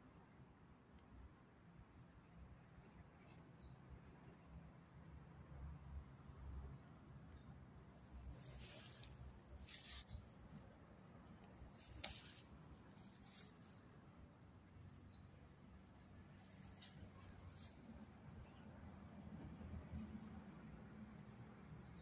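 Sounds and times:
hissy rustles: 8.3 - 10.4.

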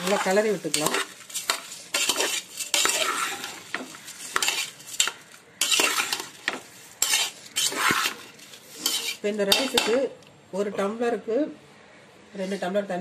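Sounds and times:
spoon stirring and scraping pot: 0.0 - 10.0.

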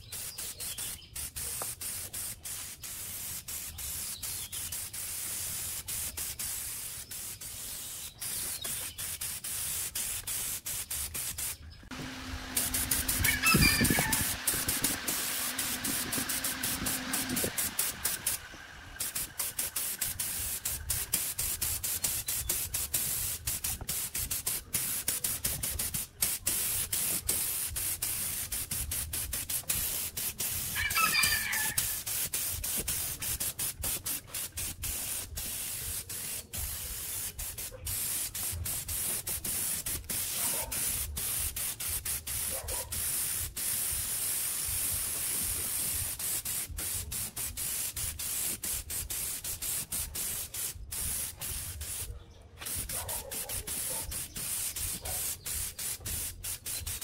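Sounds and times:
paint spray gun hissing: 0.0 - 57.0
bird call: 13.0 - 14.4.

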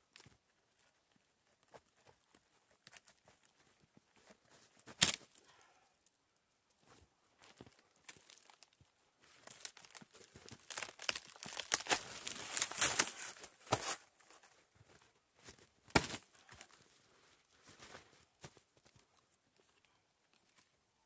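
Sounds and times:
sharp wood snap: 4.9 - 5.4
wood splintering and cracking: 5.0 - 5.4, 9.5 - 13.2.

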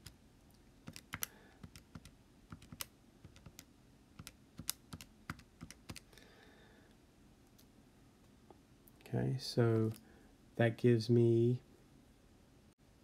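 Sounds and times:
keys tapping in quick clicks: 0.8 - 6.1.

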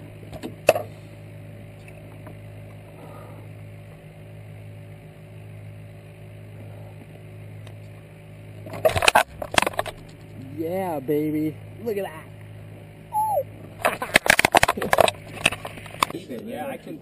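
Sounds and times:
steady low hum: 0.0 - 17.0
sharp knocks and rattles: 8.6 - 10.4.

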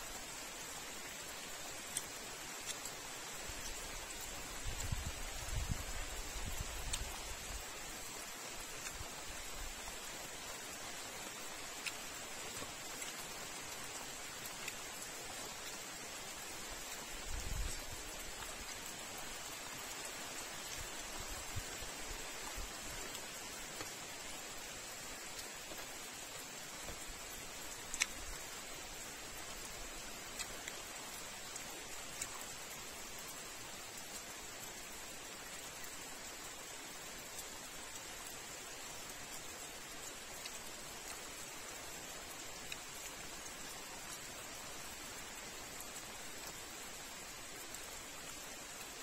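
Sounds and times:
steady rain falling: 0.0 - 49.0
faint soft clicks: 1.7 - 7.4, 8.8 - 9.1, 11.7 - 15.8, 25.2 - 28.8, 29.4 - 32.6, 42.6 - 44.3.

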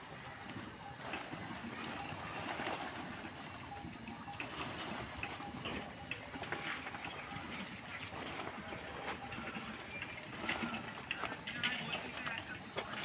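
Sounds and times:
plastic bags rustling and scraping: 4.5 - 13.0.

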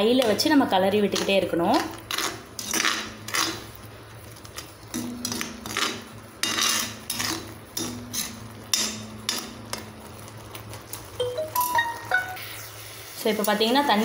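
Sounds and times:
metal spatula scraping iron pan: 2.1 - 3.6, 4.9 - 9.4.

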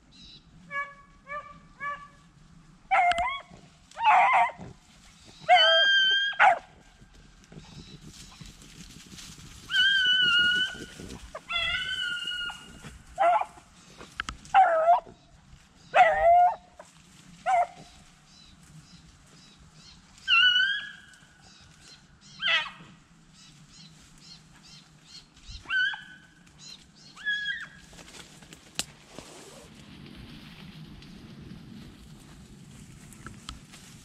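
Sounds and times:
dogs baying and barking: 2.9 - 4.8, 5.4 - 6.8, 9.7 - 15.2, 15.9 - 18.0.

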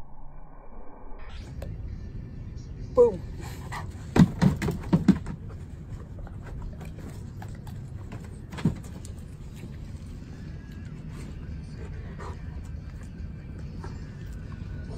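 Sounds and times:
dog paws thumping on boxes: 3.8 - 5.8, 6.4 - 9.2.

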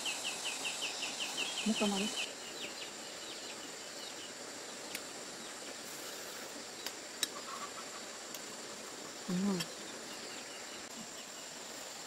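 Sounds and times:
faint bird chirps: 0.0 - 5.9
insect hum: 0.0 - 12.0.

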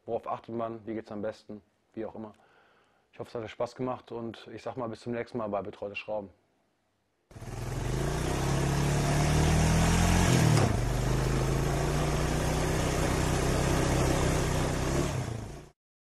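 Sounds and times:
motorcycle engine running: 7.4 - 15.7.

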